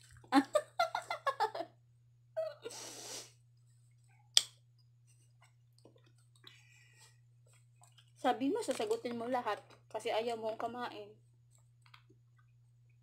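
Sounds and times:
low steady hum: 0.0s - 13.0s
woman laughing: 0.3s - 1.7s.

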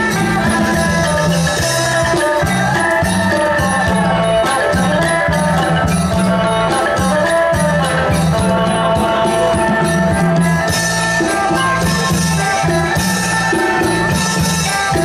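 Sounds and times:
folk band playing: 0.0s - 15.0s.

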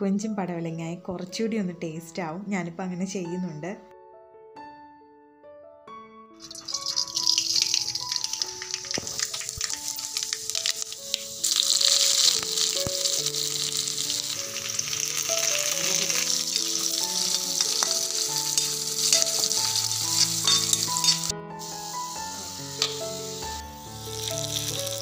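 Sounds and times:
background music: 0.0s - 25.0s
loud steady sizzle: 6.4s - 25.0s
seeds crackling in hot oil: 6.4s - 25.0s.

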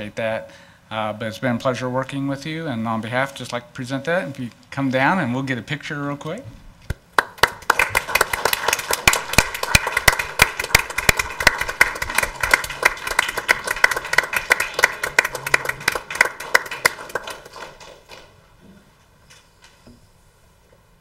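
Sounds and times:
small group applauding: 7.2s - 18.4s.

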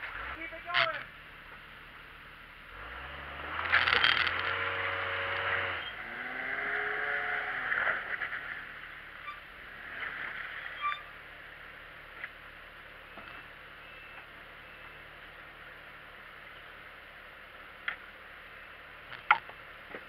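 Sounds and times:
engine revving under load: 2.6s - 11.7s.

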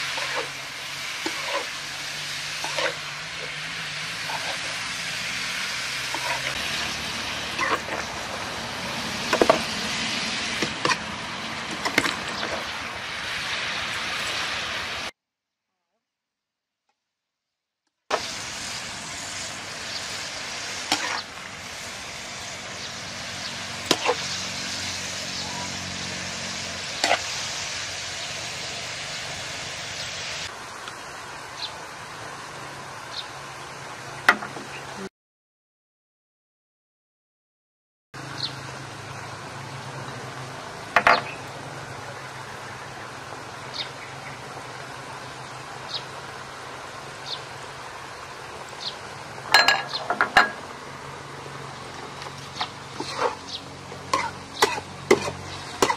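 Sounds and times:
metal spatula scraping a pan: 0.0s - 9.8s, 10.4s - 11.1s, 20.9s - 21.3s, 23.8s - 25.2s, 26.8s - 27.4s, 52.6s - 53.4s, 54.1s - 55.9s
food sizzling in a wok: 0.0s - 15.2s, 18.1s - 35.1s, 38.2s - 55.9s
metal ladle clinking: 49.5s - 50.6s.

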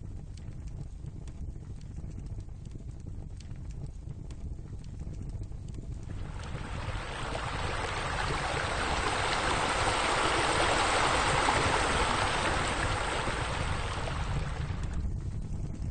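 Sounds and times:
water pouring over wall: 6.1s - 15.0s.

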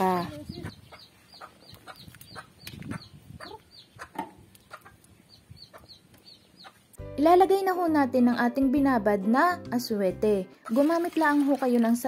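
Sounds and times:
chickens clucking: 0.0s - 7.0s
chicks peeping: 0.0s - 7.0s.

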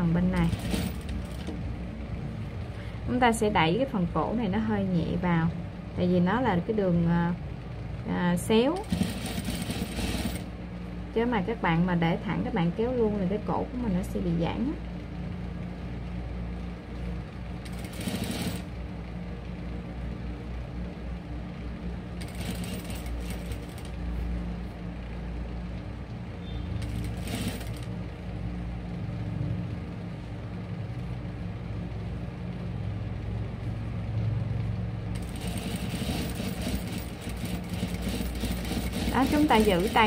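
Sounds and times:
sewing machine stitching: 0.4s - 1.5s, 8.8s - 10.5s, 17.6s - 18.7s, 22.2s - 23.9s, 26.8s - 27.9s, 35.2s - 40.0s.

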